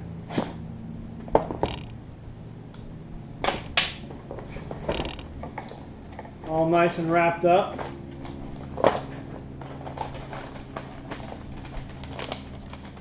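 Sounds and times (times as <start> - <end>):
cardboard rustle: 7.6 - 13.0.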